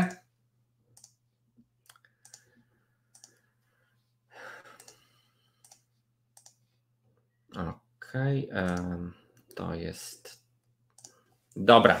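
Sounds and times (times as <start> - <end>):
faint computer clicks: 1.8 - 2.5, 3.1 - 3.4, 4.7 - 6.6, 8.6 - 9.6, 10.9 - 11.6.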